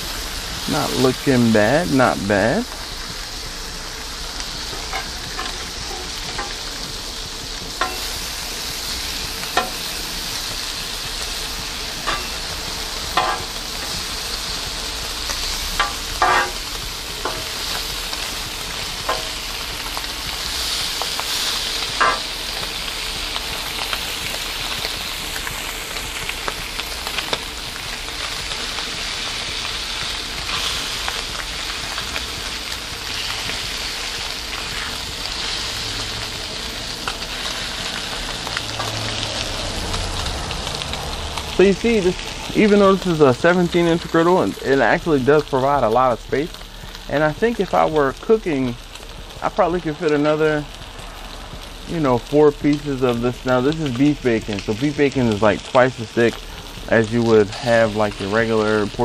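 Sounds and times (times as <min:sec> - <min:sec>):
bacon sizzling on a griddle: 0:00.0 - 0:59.0
metal spatula scraping steel: 0:13.1 - 0:14.0, 0:15.8 - 0:17.8.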